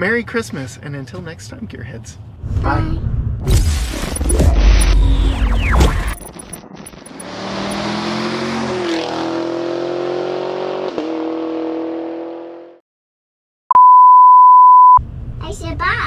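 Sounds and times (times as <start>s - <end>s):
engine-like rev sound effect: 2.4s - 12.7s.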